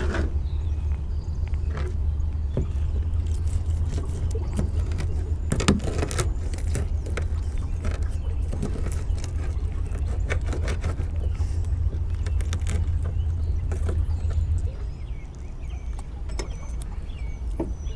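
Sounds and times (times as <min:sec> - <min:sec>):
low rumble: 0:00.0 - 0:17.9.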